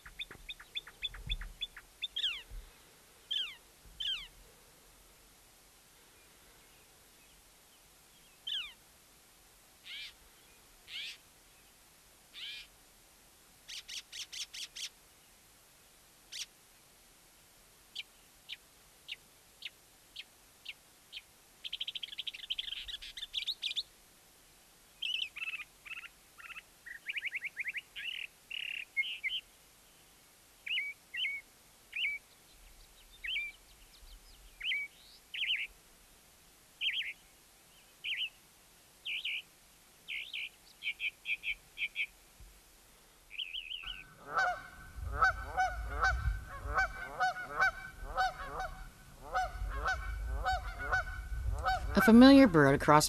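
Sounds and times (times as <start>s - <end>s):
mockingbird singing varied phrases: 0.0s - 2.4s, 43.3s - 44.2s, 45.2s - 53.0s.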